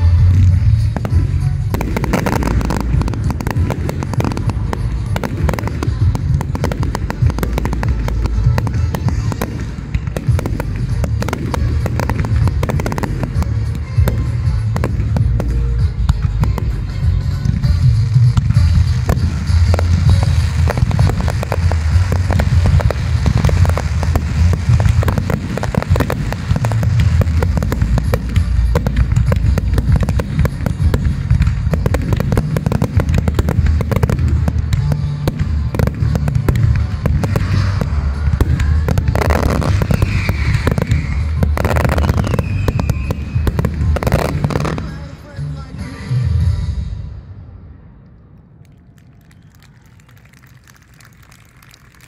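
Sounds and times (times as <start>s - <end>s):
fireworks whistling: 0.0s - 45.2s
fireworks bangs and crackling: 0.0s - 46.9s, 48.6s - 52.0s.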